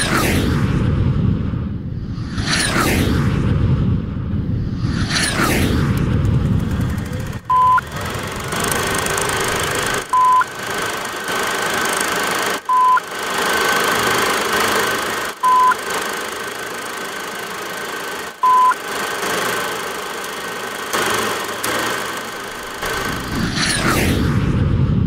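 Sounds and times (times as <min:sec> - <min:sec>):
loud electronic beep: 0:07.5 - 0:07.9, 0:10.1 - 0:10.5, 0:12.7 - 0:13.1, 0:15.4 - 0:15.8, 0:18.4 - 0:18.8.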